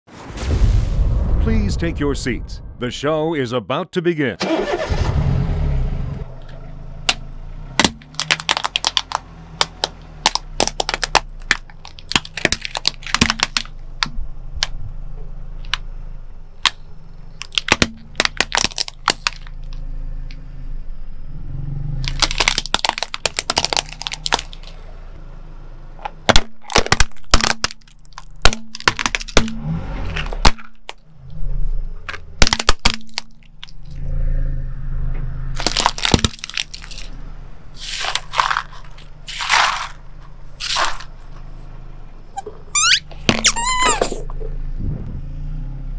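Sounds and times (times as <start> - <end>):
car engine hum: 4.4 - 45.9
plastic cracking and crunching: 7.8 - 14.1, 17.4 - 19.6, 22.0 - 24.8, 26.3 - 29.6, 32.1 - 33.8, 35.6 - 37.2, 37.8 - 40.0, 40.6 - 41.1.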